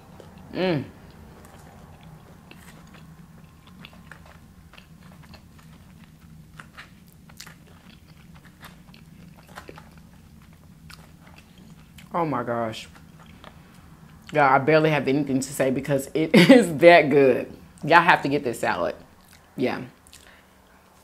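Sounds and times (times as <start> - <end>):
chewing food: 0.0 - 12.2, 12.8 - 14.4, 19.1 - 21.0
steady low hum: 0.0 - 21.0.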